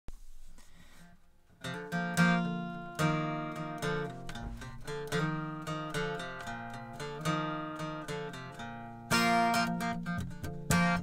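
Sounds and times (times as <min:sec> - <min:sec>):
acoustic guitar strumming: 0:00.2 - 0:11.0.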